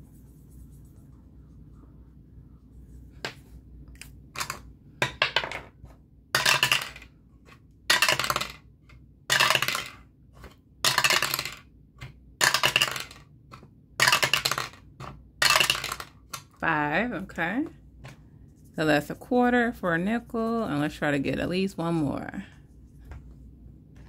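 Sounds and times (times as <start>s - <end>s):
die clattering through dice tower: 6.4s - 7.1s, 7.9s - 8.7s, 9.3s - 10.0s, 10.8s - 11.7s, 12.4s - 13.3s, 14.0s - 16.5s.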